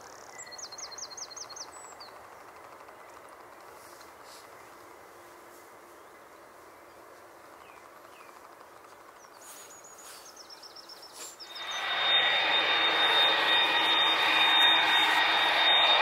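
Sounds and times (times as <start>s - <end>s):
bird chirping: 0.2s - 3.2s, 9.1s - 16.0s
jet airliner engines: 11.1s - 16.0s.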